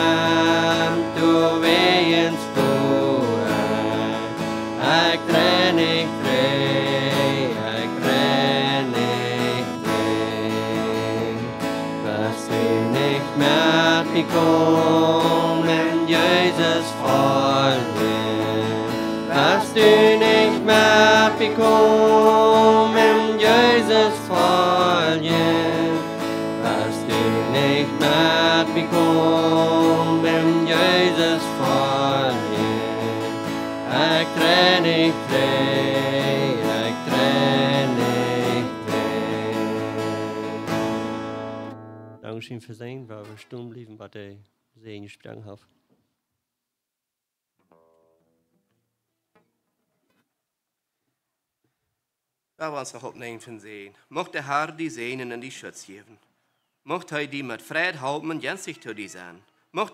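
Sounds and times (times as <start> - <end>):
man and woman singing: 0.0 - 40.8
acoustic guitar strumming: 0.0 - 42.3, 47.6 - 49.6.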